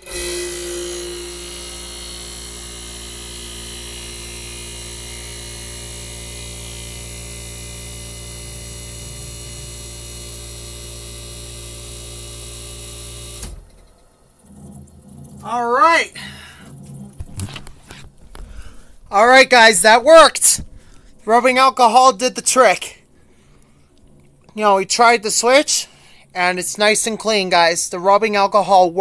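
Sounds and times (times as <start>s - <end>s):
air conditioner compressor humming: 0.0s - 29.0s.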